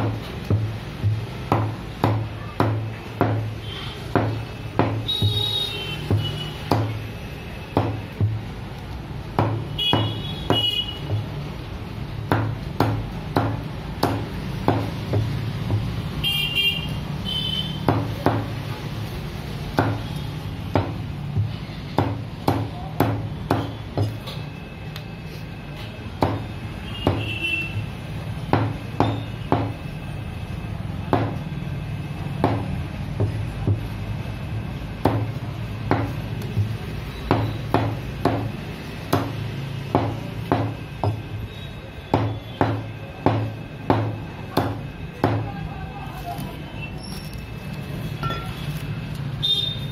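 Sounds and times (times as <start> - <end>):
knife chopping on wooden block: 0.0 - 7.1, 7.7 - 8.5, 12.3 - 16.0, 17.8 - 18.6, 19.7 - 24.4, 26.2 - 27.3, 35.0 - 41.2, 42.1 - 45.5.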